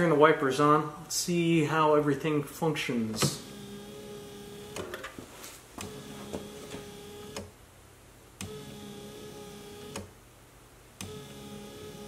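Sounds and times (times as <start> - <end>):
wiper motor whining: 3.2 - 5.1, 5.8 - 7.5, 8.4 - 10.1, 11.0 - 12.0.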